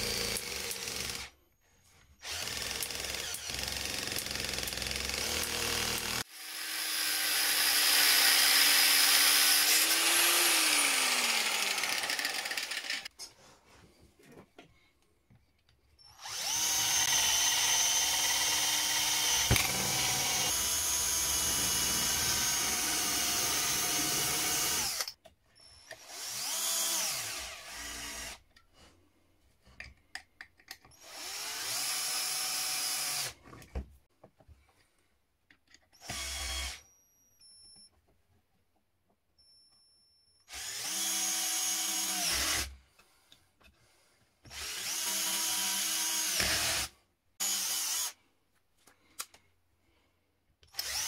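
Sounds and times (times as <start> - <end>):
cordless drill driving screws: 2.2 - 13.1, 16.0 - 28.4, 40.5 - 42.7, 44.5 - 48.2, 50.7 - 51.0
drill click: 16.1 - 25.1.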